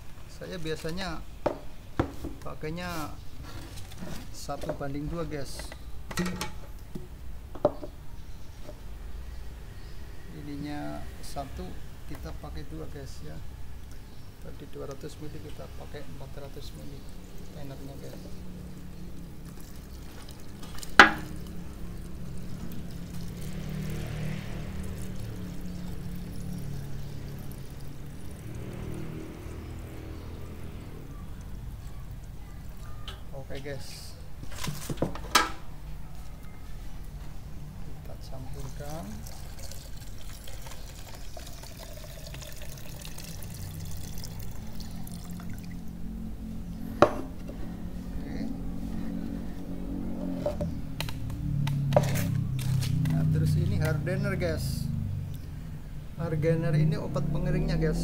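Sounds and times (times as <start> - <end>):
liquid pouring into plastic jug: 13.8 - 33.1, 38.3 - 46.0.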